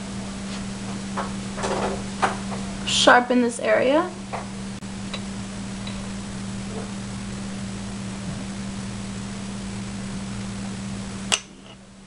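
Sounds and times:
low electrical hum: 0.0 - 12.0
steady hiss: 4.5 - 12.0.

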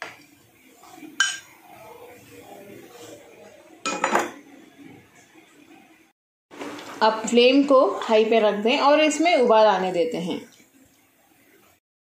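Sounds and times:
faint liquid stirring: 0.1 - 6.1.

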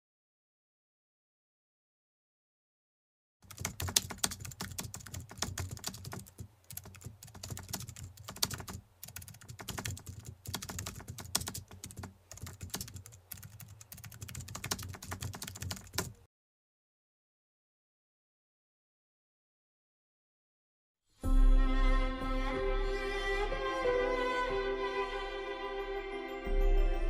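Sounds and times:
keyboard typing: 3.4 - 16.2.

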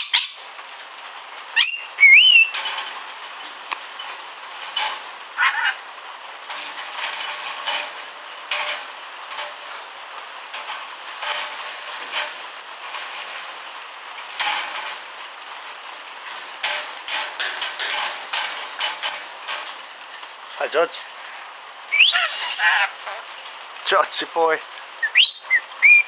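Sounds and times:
parrot harsh chatter: 0.0 - 0.4, 1.6 - 2.6, 5.4 - 5.9, 21.9 - 23.4, 25.0 - 26.0.

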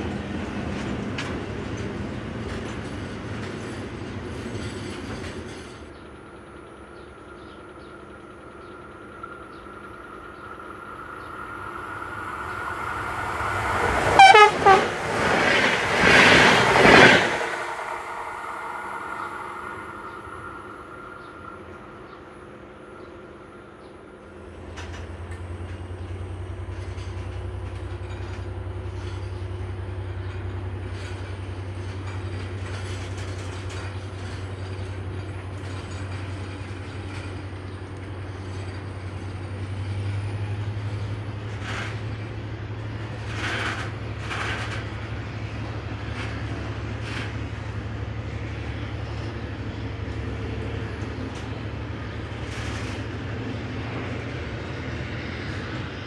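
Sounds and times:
freight train rumbling by: 0.0 - 56.0
wheels clacking over rails: 8.6 - 21.8, 24.7 - 55.9.

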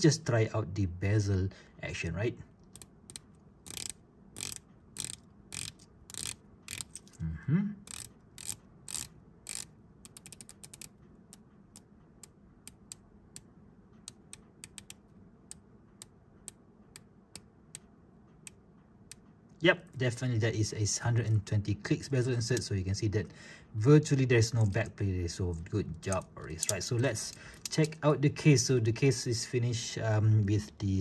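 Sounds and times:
watch bezel ratcheting clicks: 2.6 - 7.2, 7.8 - 19.2.

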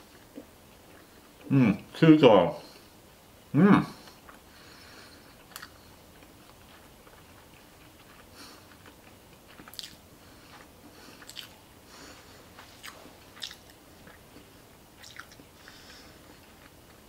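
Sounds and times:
person chewing: 4.0 - 17.0
wet mouth clicks and lip smacks: 5.5 - 5.8, 9.6 - 10.0, 11.2 - 11.6, 12.8 - 14.2, 15.0 - 15.4.

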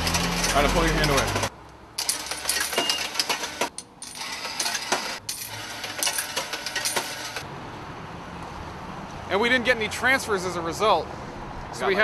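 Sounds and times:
coins clinking into fare box: 0.0 - 7.4.

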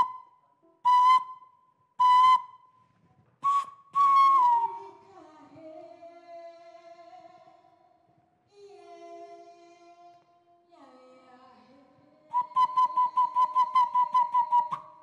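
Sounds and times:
soft held whistle notes: 0.0 - 2.8, 3.4 - 4.8, 12.3 - 15.0
breathy whistle blasts: 2.0 - 2.6.

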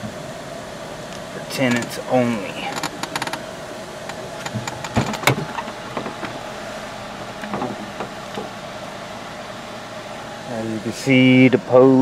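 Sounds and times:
car cabin hum: 0.0 - 12.0
sharp clicks and knocks: 2.7 - 3.4, 4.0 - 6.4, 7.4 - 8.5.

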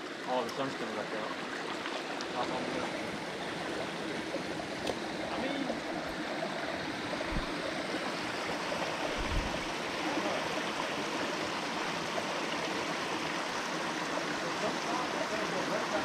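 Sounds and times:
creek water splashing over rocks: 0.0 - 16.0
low thumps: 7.2 - 7.7, 9.1 - 9.7.

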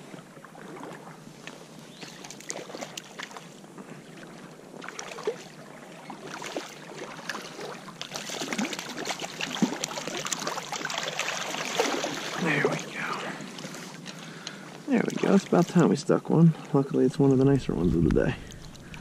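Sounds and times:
person wading through stream: 0.1 - 17.3, 18.3 - 19.0
fish thrashing in water: 4.8 - 14.2.

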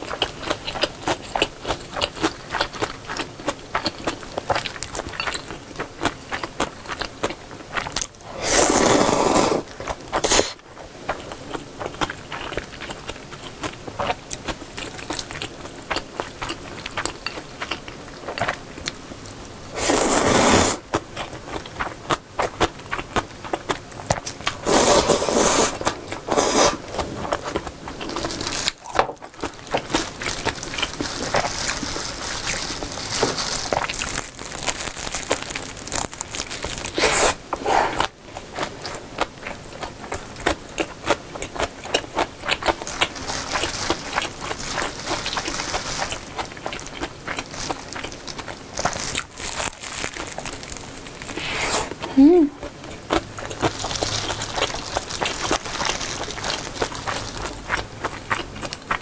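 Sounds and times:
wet chewing: 0.0 - 59.0
slurping noodles and broth: 8.2 - 10.6, 19.7 - 20.9, 24.5 - 28.2, 36.9 - 38.2, 51.3 - 52.1.

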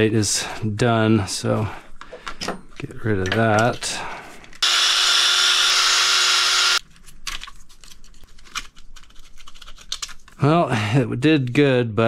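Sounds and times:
cordless screwdriver motor running: 4.6 - 6.8
plastic clicks and rattles: 7.2 - 10.4.

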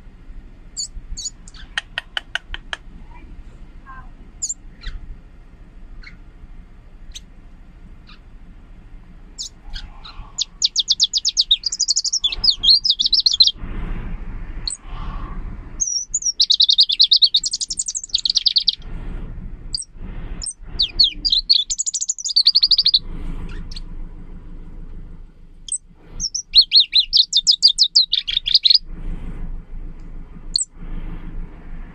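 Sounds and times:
bird singing rapid high trills: 0.8 - 1.7, 4.0 - 5.0, 6.0 - 6.3, 8.0 - 8.3, 9.3 - 13.6, 14.6 - 14.8, 15.8 - 18.8, 19.7 - 23.9, 25.6 - 28.9, 30.5 - 30.8
faint bird chirps: 0.8 - 1.8, 3.9 - 5.0, 6.0 - 6.3, 8.0 - 8.3, 9.4 - 13.6, 15.8 - 18.8, 19.7 - 23.9, 25.7 - 28.8.

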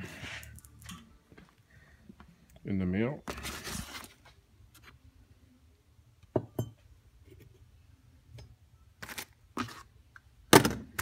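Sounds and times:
cardboard rustling and scraping: 3.3 - 4.4.

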